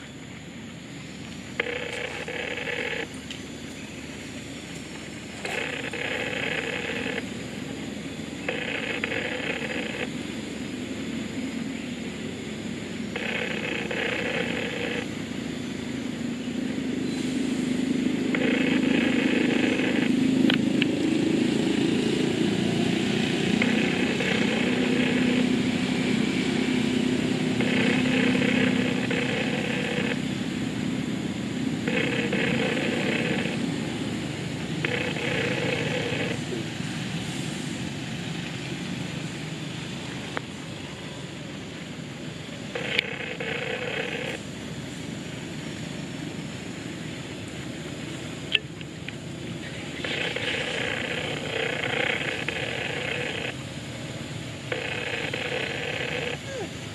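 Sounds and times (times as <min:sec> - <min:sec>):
motor engine humming: 0:00.0 - 0:56.9
buzzing call: 0:01.6 - 0:03.2, 0:05.2 - 0:07.7, 0:08.4 - 0:10.2, 0:13.0 - 0:15.3, 0:17.0 - 0:36.8, 0:42.6 - 0:44.4, 0:49.6 - 0:54.0, 0:54.6 - 0:56.9.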